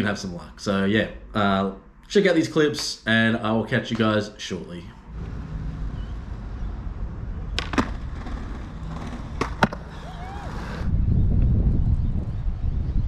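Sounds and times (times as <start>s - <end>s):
skateboard wheels rolling on concrete: 5.0s - 13.0s
skateboard grinding ledge: 5.1s - 10.9s
sharp wooden skateboard clacks: 7.5s - 9.9s.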